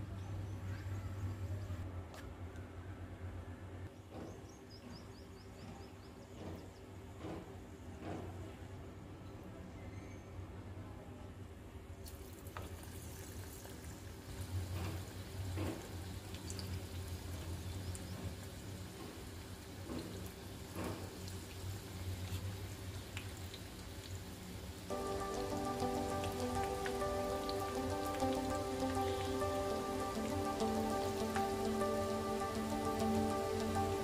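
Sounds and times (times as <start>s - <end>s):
fritters deep-frying in oil: 12.1s - 34.0s.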